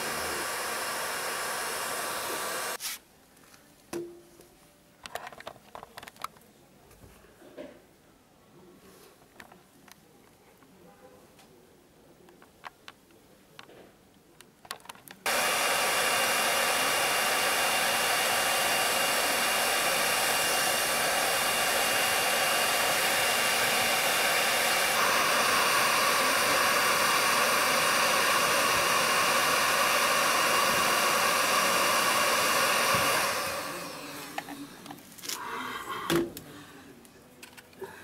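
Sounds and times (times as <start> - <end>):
hot-air welding gun hissing: 0.0 - 2.9, 15.3 - 33.8.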